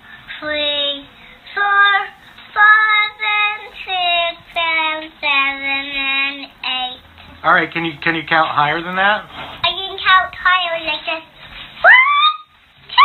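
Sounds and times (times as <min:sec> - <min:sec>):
child singing: 0:00.4 - 0:07.0, 0:09.6 - 0:11.3.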